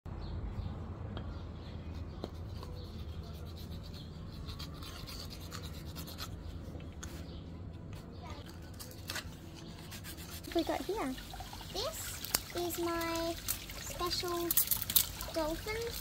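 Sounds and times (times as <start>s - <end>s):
low background hum: 0.1s - 16.0s
metal file scraping stone: 2.6s - 6.4s.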